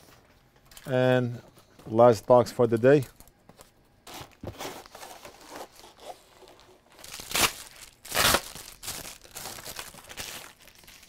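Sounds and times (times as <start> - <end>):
packing material rustling: 4.1 - 11.0.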